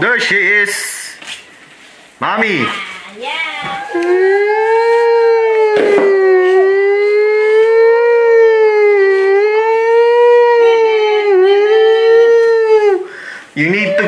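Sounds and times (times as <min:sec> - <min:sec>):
toy siren wailing: 0:03.9 - 0:13.0.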